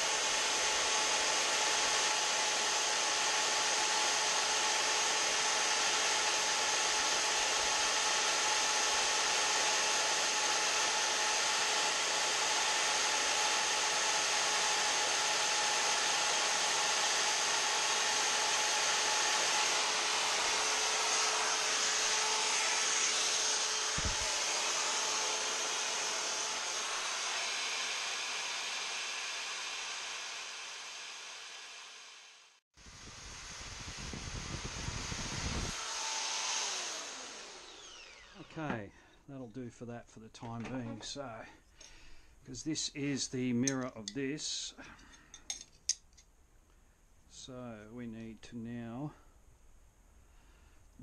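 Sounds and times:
rotary tool whining: 0:00.0 - 0:32.1, 0:33.1 - 0:38.8.

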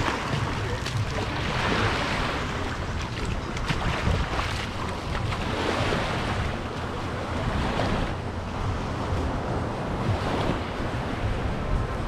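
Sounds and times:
small waves washing onto beach: 0:00.0 - 0:12.0
wind rumbling on microphone: 0:00.0 - 0:12.0.

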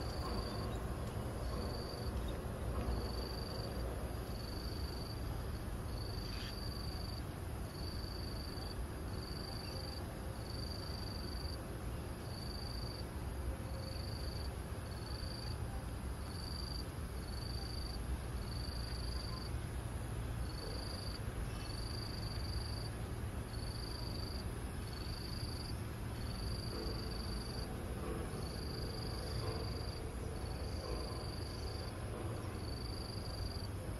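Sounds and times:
insect calling in pulses: 0:06.2 - 0:07.0.

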